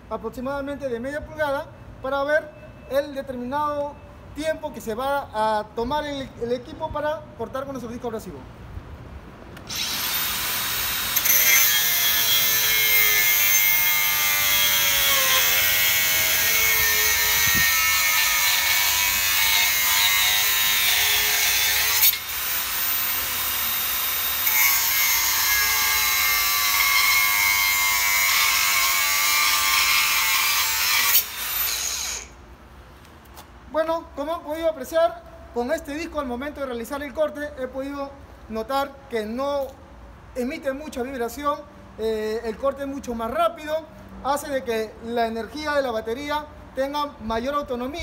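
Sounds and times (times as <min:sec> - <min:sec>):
angle grinder cutting steel: 0:09.7 - 0:32.4.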